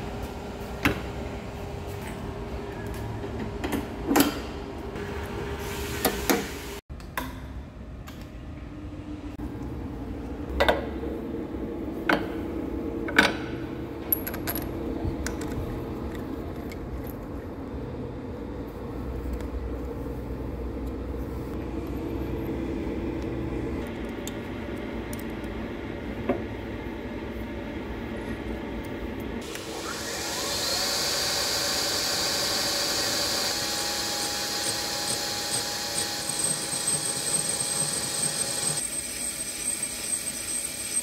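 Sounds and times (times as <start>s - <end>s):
mechanical hum: 0.0s - 41.0s.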